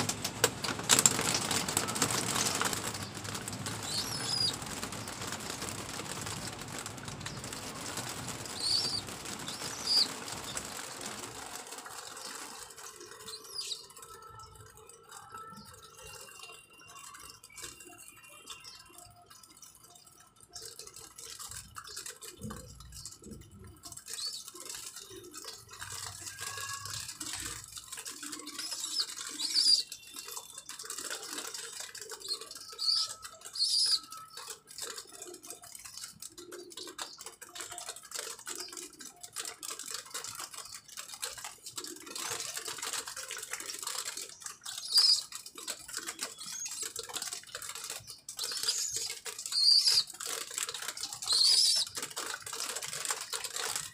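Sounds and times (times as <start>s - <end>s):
pigeon feathers rustling against hands: 0.0s - 13.3s.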